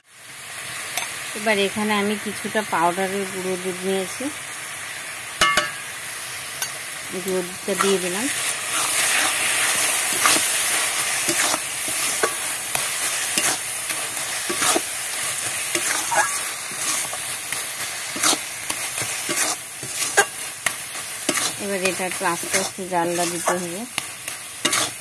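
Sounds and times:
steady sizzle: 0.0 - 25.0
spatula scraping metal wok: 7.7 - 25.0.

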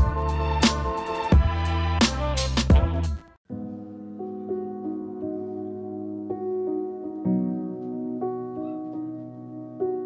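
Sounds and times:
soft slow keyboard chords: 3.5 - 10.0.

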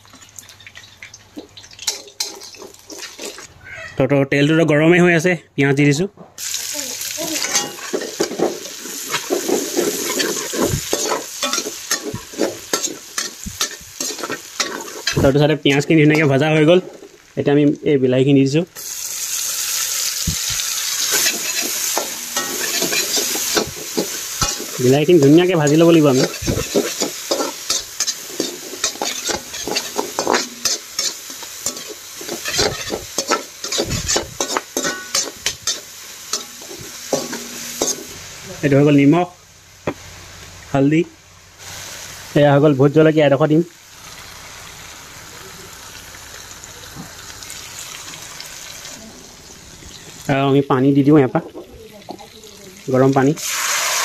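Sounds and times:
onions sizzling in oil: 0.0 - 3.5, 6.4 - 54.0
metal spatula scraping wok: 1.8 - 3.5, 7.2 - 17.2, 20.4 - 38.4.

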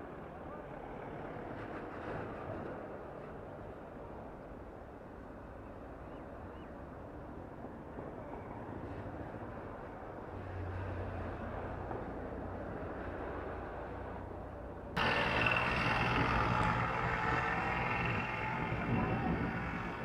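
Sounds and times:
road noise: 9.2 - 20.0
heavy vehicle engine hum: 14.9 - 20.0
vehicle engines passing: 15.0 - 20.0.

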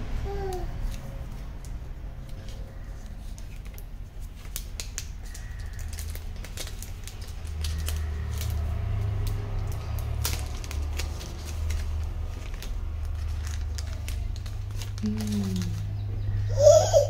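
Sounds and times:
plastic wrap crinkling: 0.4 - 16.0.

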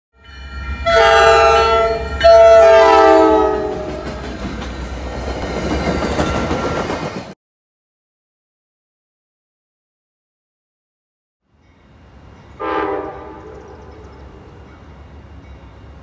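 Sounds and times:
train coaches rumbling over rails: 0.3 - 7.4, 11.6 - 16.0
locomotive air horn blasts: 0.8 - 4.0, 12.6 - 13.8.

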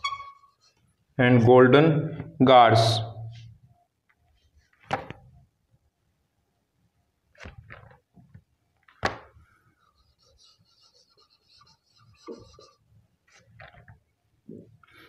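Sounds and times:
marker squeaking on whiteboard: 0.0 - 1.1, 9.7 - 13.8.

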